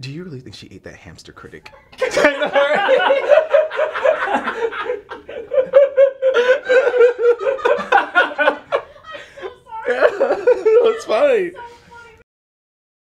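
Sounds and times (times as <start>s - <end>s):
woman laughing hard: 1.8s - 12.2s.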